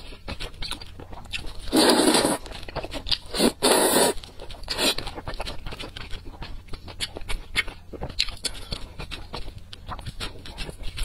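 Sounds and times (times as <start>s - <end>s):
wet chewing clicks: 0.0s - 11.0s
person slurping noodles: 1.7s - 2.4s, 3.3s - 5.0s.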